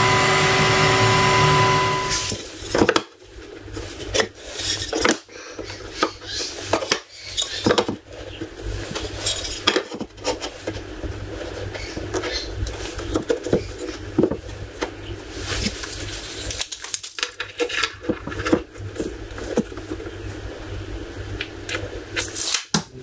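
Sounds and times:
router table motor running: 0.0 - 2.4.

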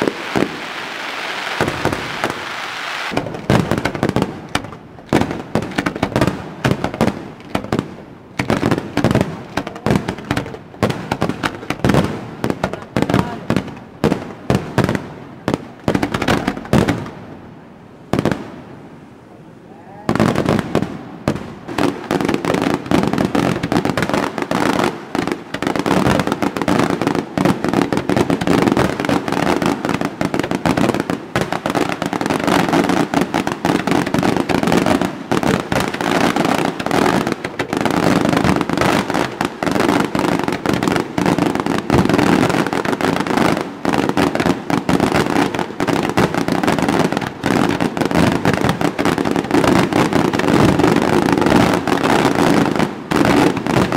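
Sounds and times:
fireworks bursting with crackle: 0.0 - 18.9, 20.0 - 53.9.

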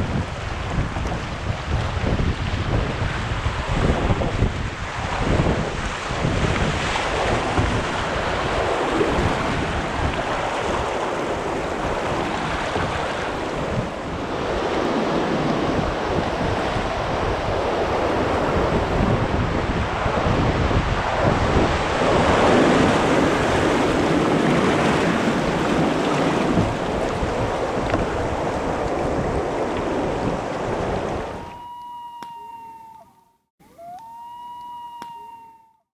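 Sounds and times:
rushing whitewater: 0.0 - 31.4
wind buffeting microphone: 0.0 - 31.7
steady high tone: 31.4 - 35.8.

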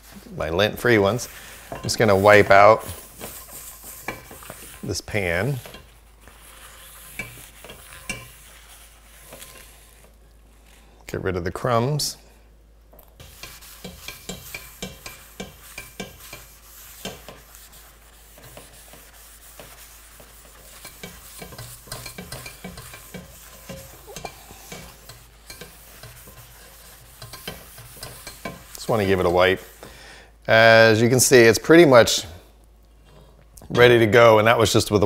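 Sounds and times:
paper towel rubbing skillet: 0.0 - 10.9, 13.2 - 29.8.

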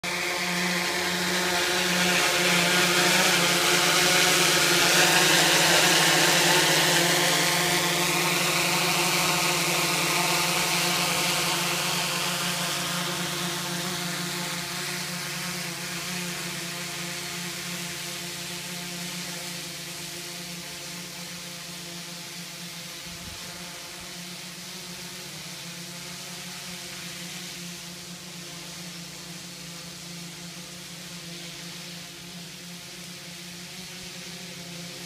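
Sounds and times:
drone rotors whirring: 0.0 - 35.0
rushing hiss of rotor downwash: 0.0 - 35.0.

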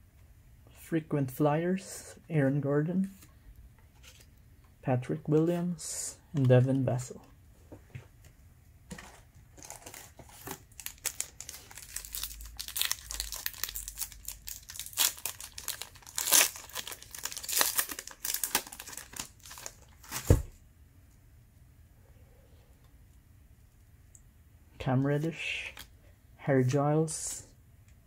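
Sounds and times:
plastic wrapper crinkling: 9.5 - 20.3.

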